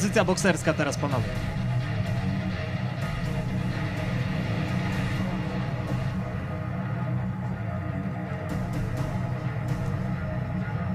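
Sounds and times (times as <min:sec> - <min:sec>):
background music with heavy low end: 0:00.0 - 0:10.9.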